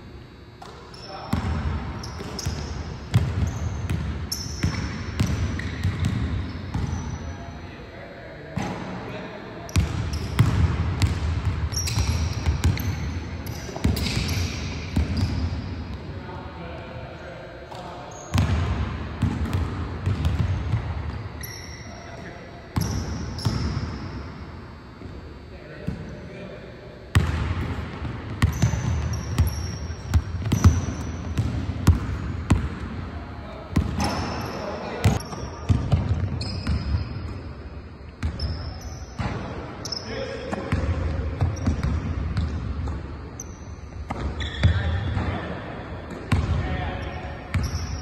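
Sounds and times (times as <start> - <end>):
sneaker squeaks: 0.6 - 7.7, 9.7 - 15.7, 17.7 - 18.6, 20.0 - 24.2, 28.4 - 32.6, 33.8 - 45.4, 47.0 - 48.0
basketball bouncing on wooden floor: 2.3 - 6.9, 27.2 - 32.8.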